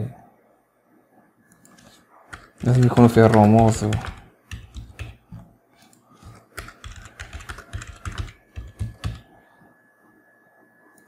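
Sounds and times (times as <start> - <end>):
computer keyboard typing: 1.6 - 9.3.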